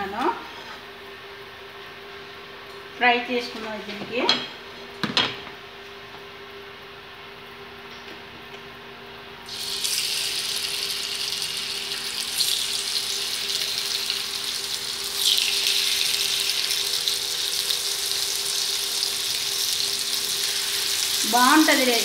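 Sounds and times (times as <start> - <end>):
fish sizzling in hot oil: 9.5 - 22.0.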